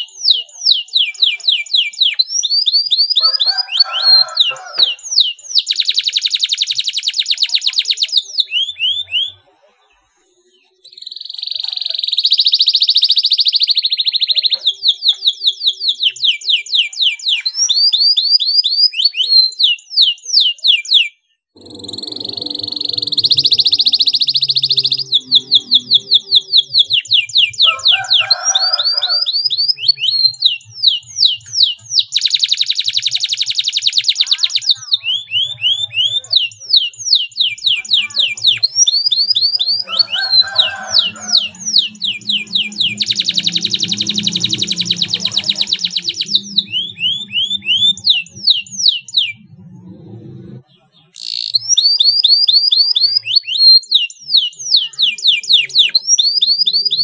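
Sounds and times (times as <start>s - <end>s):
canary singing trills: 0.0s - 49.9s, 50.5s - 57.0s.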